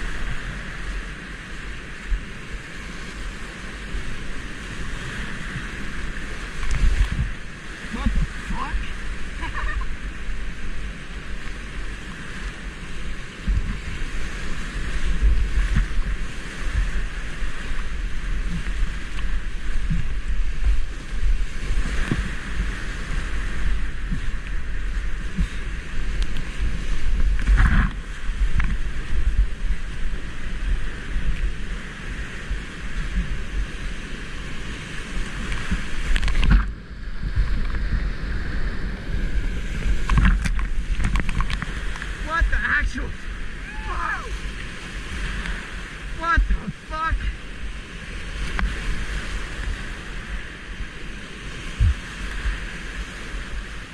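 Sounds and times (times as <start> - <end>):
wind buffeting microphone: 0.0 - 53.9
whitewater rapids rushing: 2.7 - 26.1, 37.3 - 53.9.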